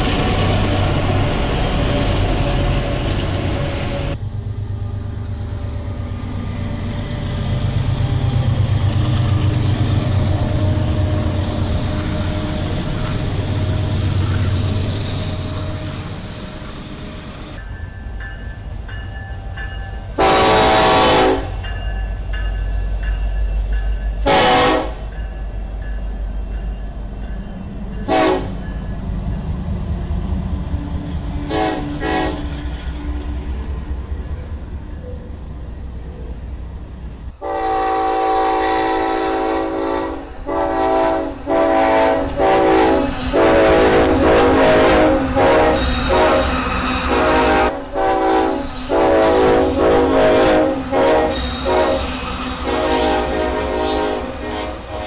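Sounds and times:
freight train rumbling: 0:00.0 - 0:55.0
locomotive horn blasts: 0:20.2 - 0:21.6, 0:24.2 - 0:25.1, 0:28.0 - 0:28.7, 0:31.5 - 0:32.5, 0:37.4 - 0:55.0.

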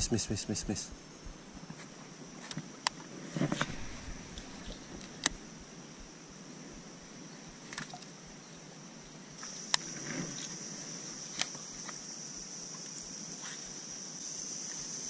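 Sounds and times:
insects droning: 0:00.0 - 0:15.0
brief rustle: 0:03.3 - 0:05.3.

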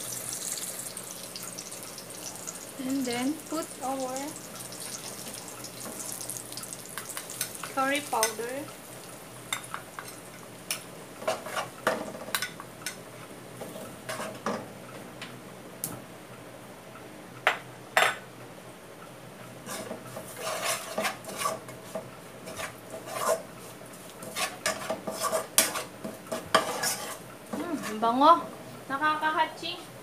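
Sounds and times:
metal spoon scraping metal pot: 0:19.7 - 0:21.6, 0:22.5 - 0:23.4, 0:24.3 - 0:27.2.

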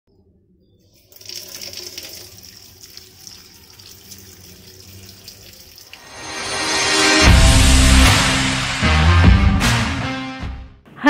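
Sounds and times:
tap water splashing on pasta: 0:01.0 - 0:06.0
music: 0:06.0 - 0:11.0.

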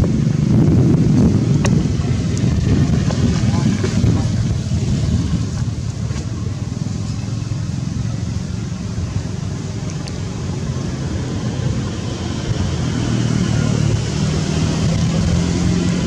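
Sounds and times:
low rumbling background noise: 0:00.0 - 0:16.0.

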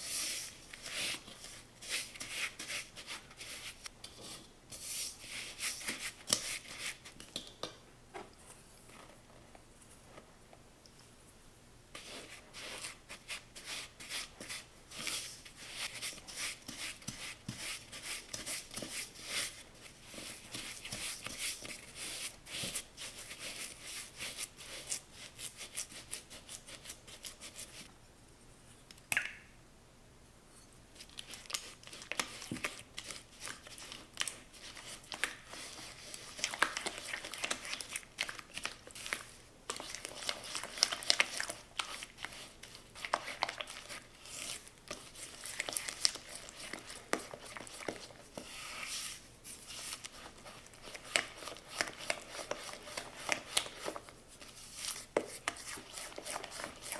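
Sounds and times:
spatula scraping plastic bowl: 0:39.8 - 0:56.9.

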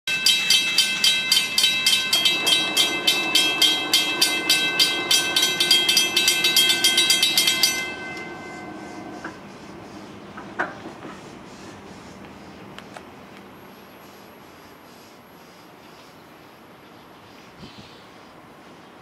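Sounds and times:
crossing bell ringing rapidly: 0:00.1 - 0:09.5
low steady hum: 0:00.4 - 0:12.9.

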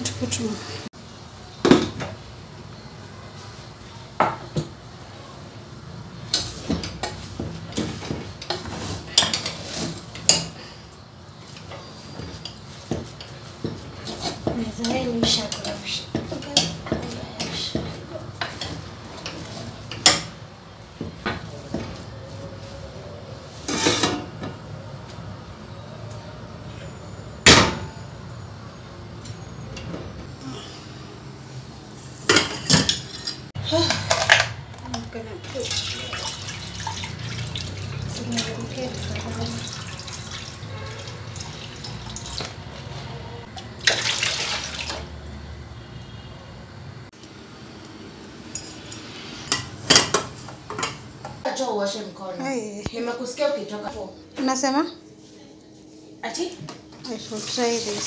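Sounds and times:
liquid pouring into a pot: 0:39.2 - 0:42.4, 0:43.8 - 0:45.0.

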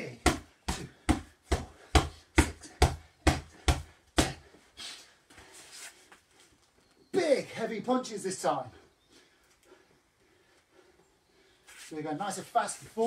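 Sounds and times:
gloved punches on punch bag: 0:00.2 - 0:04.4.

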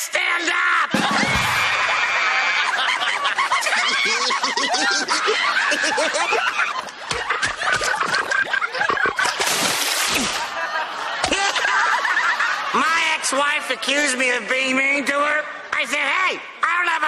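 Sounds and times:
cartoon voices laughing: 0:00.9 - 0:09.4, 0:10.1 - 0:13.0.

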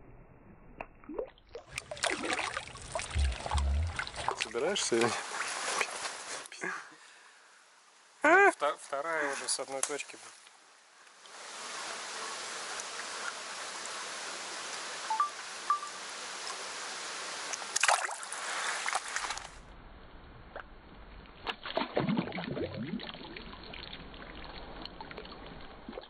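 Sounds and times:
water gurgling and splashing: 0:01.0 - 0:06.0, 0:21.6 - 0:26.0
stream trickling: 0:01.0 - 0:06.5, 0:17.3 - 0:19.6, 0:21.7 - 0:26.0.

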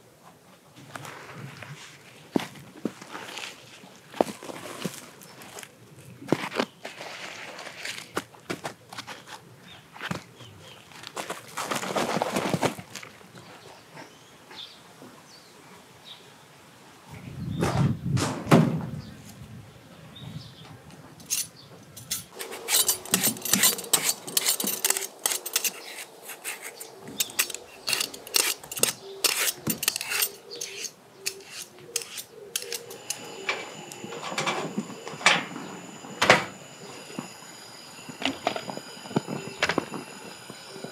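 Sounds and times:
peeler scraping potato: 0:22.0 - 0:40.9.

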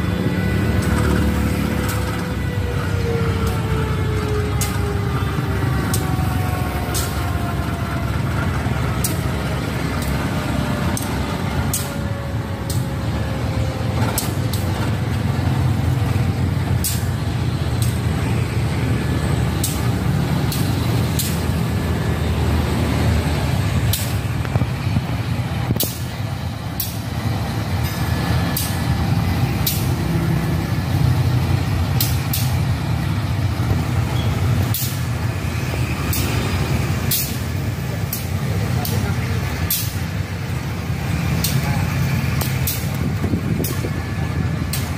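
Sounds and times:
locomotive engine rumbling: 0:00.0 - 0:44.9
sharp clicks: 0:29.6 - 0:30.0.

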